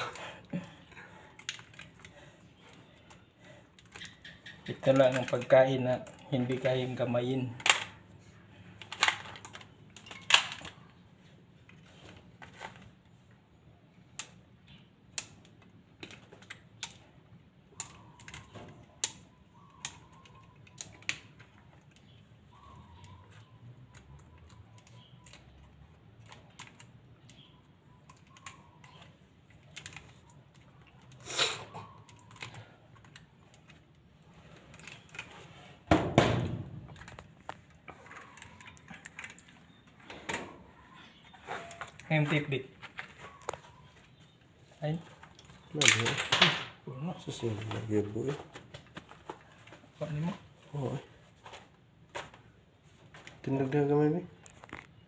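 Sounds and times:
pliers clicking and snipping wires: 0:00.0 - 0:02.2, 0:03.0 - 0:06.7, 0:14.0 - 0:31.2, 0:45.2 - 0:46.6.

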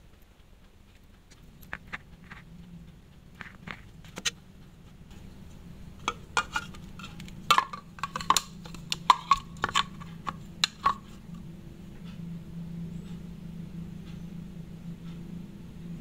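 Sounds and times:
steady low hum: 0:00.0 - 0:16.0
watch tapping on plastic container: 0:06.1 - 0:11.1.

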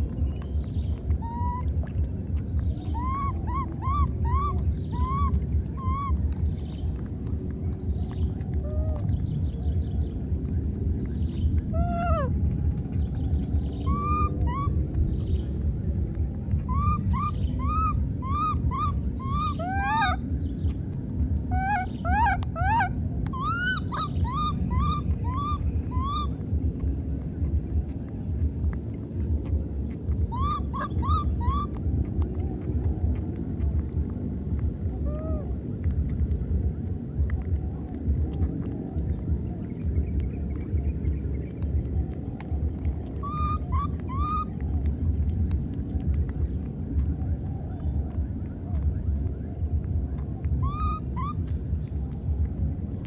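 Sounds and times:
steady low rumble: 0:00.0 - 0:53.0
baby monkey crying and cooing: 0:01.0 - 0:02.0, 0:02.8 - 0:06.6, 0:08.5 - 0:09.2, 0:11.7 - 0:12.4, 0:13.9 - 0:14.9, 0:16.5 - 0:20.3, 0:21.4 - 0:26.4, 0:30.1 - 0:32.3, 0:35.0 - 0:35.5, 0:43.1 - 0:44.5, 0:50.6 - 0:51.5.

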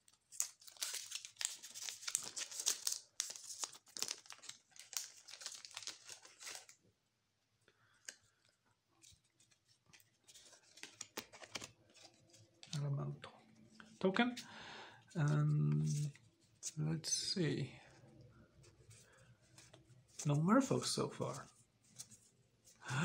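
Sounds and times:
foil wrapper crinkling and tearing: 0:00.1 - 0:06.8, 0:10.0 - 0:12.8
playing cards clicking: 0:10.7 - 0:11.7.

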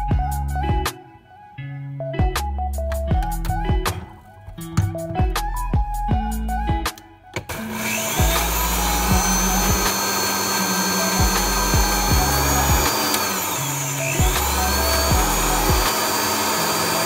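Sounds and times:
blender motor whirring: 0:07.4 - 0:17.0.

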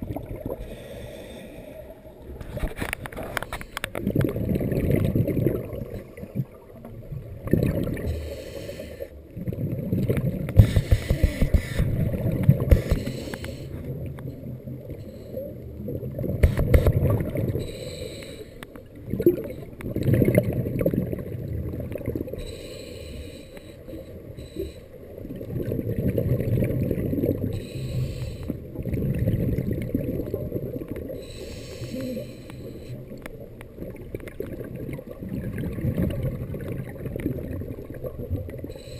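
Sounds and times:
exhaled bubbles rushing: 0:00.0 - 0:00.7, 0:02.4 - 0:08.1, 0:09.2 - 0:13.0, 0:15.6 - 0:17.6, 0:19.0 - 0:22.4, 0:25.2 - 0:27.6, 0:28.6 - 0:31.2, 0:33.0 - 0:38.7
regulator breathing hiss: 0:08.1 - 0:09.1, 0:12.7 - 0:13.8, 0:17.6 - 0:18.6, 0:22.4 - 0:25.0, 0:27.6 - 0:28.6, 0:31.2 - 0:33.0.

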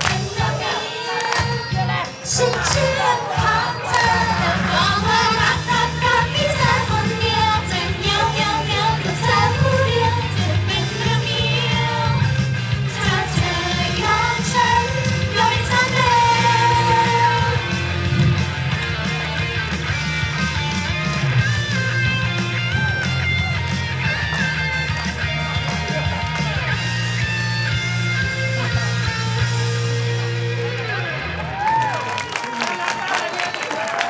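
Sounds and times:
women singing pop song: 0:00.0 - 0:17.8
amplified backing track: 0:00.0 - 0:31.5.

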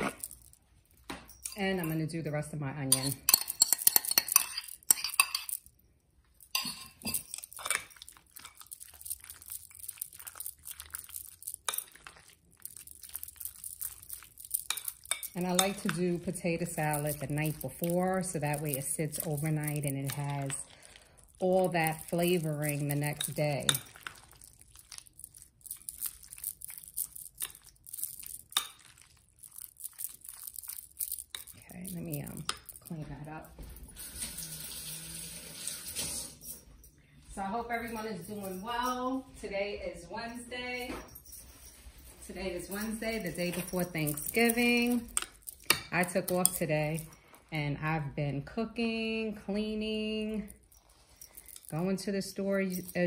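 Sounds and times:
utensil stirring in glass bowl: 0:01.4 - 0:05.7, 0:06.4 - 0:33.3, 0:41.5 - 0:47.6, 0:49.9 - 0:53.0.

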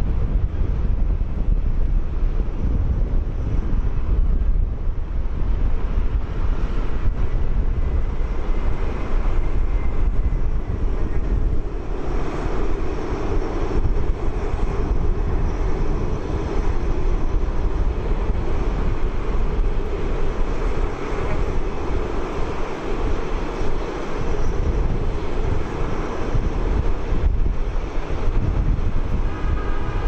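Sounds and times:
jet engines at taxi power: 0:00.0 - 0:30.0.

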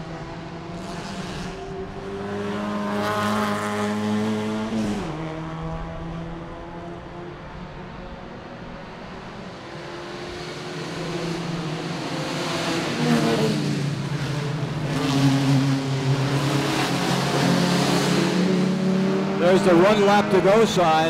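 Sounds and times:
sports car engines racing past: 0:00.0 - 0:21.0.

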